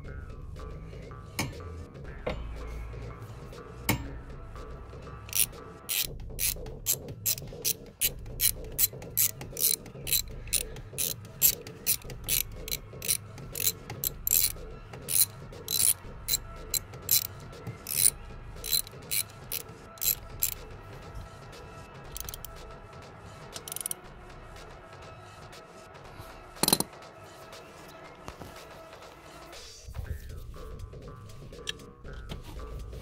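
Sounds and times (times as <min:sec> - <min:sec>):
socket ratchet clicking: 0:05.3 - 0:20.6, 0:22.1 - 0:22.6, 0:23.6 - 0:24.0, 0:26.6 - 0:26.9.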